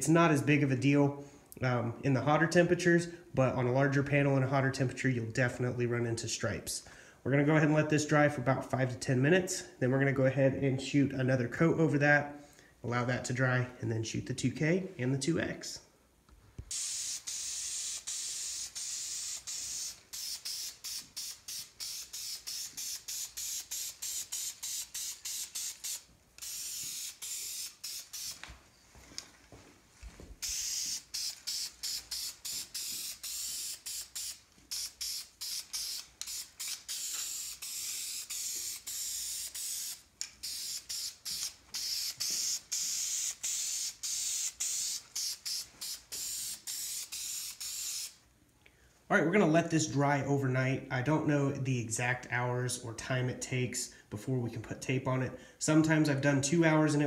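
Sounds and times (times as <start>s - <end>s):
spray paint can hissing: 16.7s - 28.6s, 30.4s - 48.2s.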